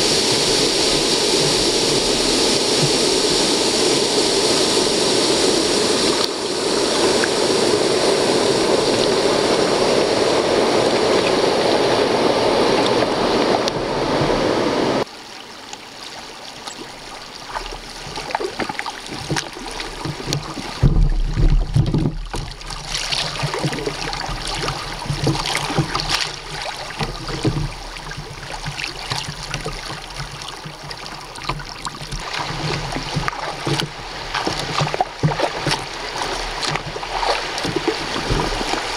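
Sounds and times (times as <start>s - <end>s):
river rapids rushing: 0.0s - 21.5s, 22.4s - 38.9s
flowing water: 0.0s - 38.9s
small splashes: 15.4s - 38.9s
low bumps: 18.2s - 38.9s.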